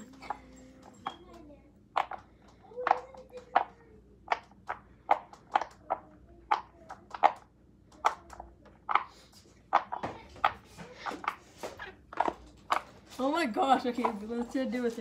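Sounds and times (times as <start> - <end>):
fidget toy popping clicks: 1.0 - 11.4.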